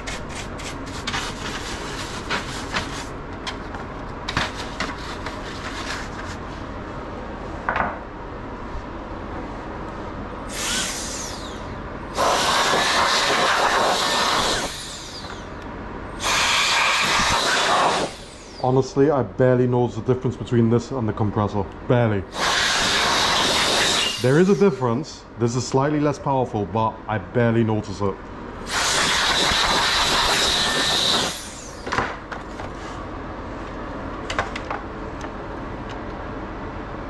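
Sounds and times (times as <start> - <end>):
air blower hissing blasts: 10.4 - 19.1, 22.3 - 25.1, 28.6 - 32.2.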